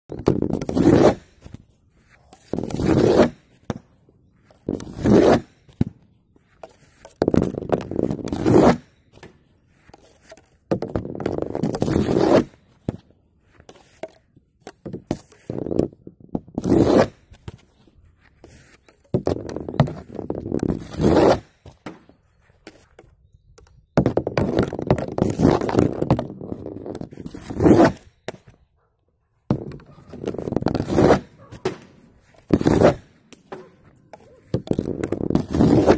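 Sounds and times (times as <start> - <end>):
stick scraping ball on wooden board: 0.1 - 28.6, 29.4 - 35.9
ball thunk: 29.5 - 35.9.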